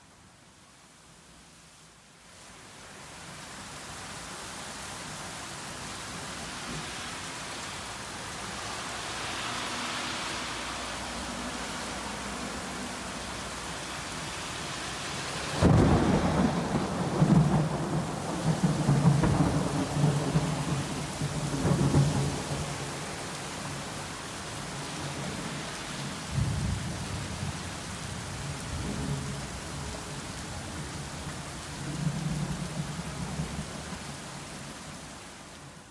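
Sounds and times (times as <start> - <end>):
heavy rain on pavement: 0.0 - 35.9
thunder clap and rumbling: 15.5 - 22.9.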